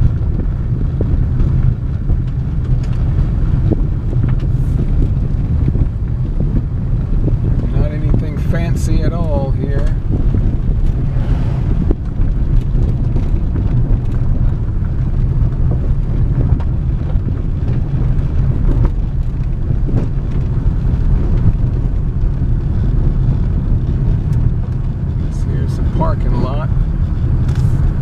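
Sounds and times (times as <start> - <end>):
car driving on gravel road: 0.0 - 28.0
oncoming car passing: 10.8 - 12.9.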